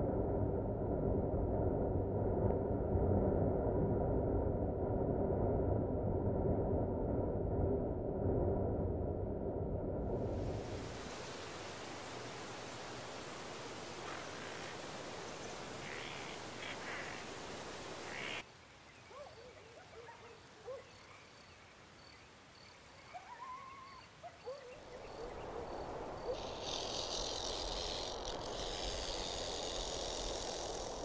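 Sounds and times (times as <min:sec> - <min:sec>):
steady hiss: 0:10.2 - 0:23.2, 0:24.0 - 0:31.0
chirping animal calls: 0:11.7 - 0:18.4.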